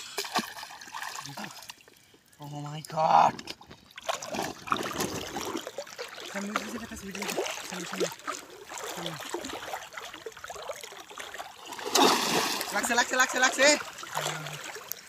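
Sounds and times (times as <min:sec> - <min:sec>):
people wading through water: 0:00.0 - 0:15.0.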